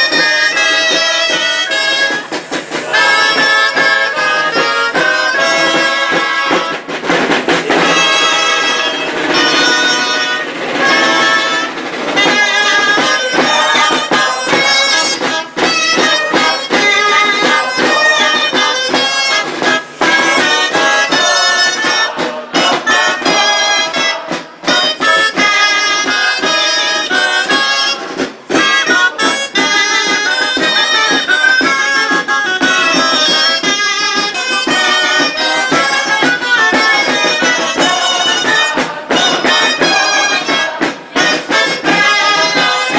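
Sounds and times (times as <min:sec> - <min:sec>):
shawms playing folk melody: 0:00.0 - 0:42.9.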